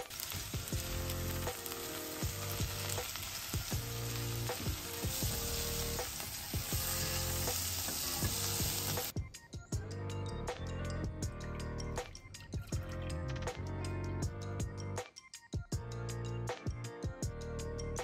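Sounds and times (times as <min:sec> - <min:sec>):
vegetables sizzling in a pot: 0:00.0 - 0:09.1.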